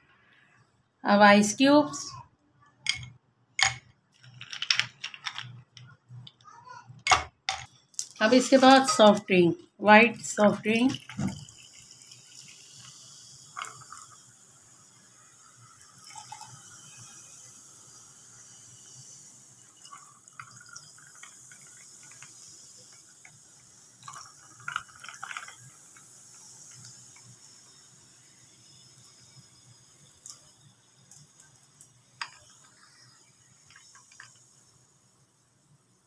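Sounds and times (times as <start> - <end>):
soft drink pouring over ice: 2.9 - 6.3, 10.4 - 35.3
drink fizzing: 10.1 - 35.4.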